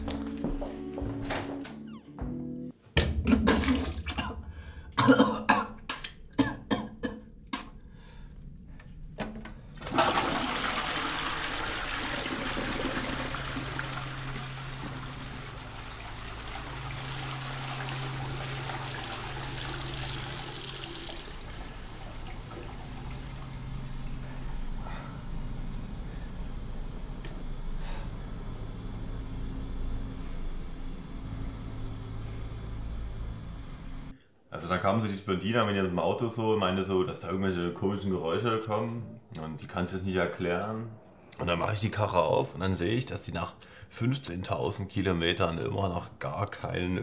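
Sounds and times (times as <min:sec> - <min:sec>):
water running hard: 0:09.8 - 0:23.8.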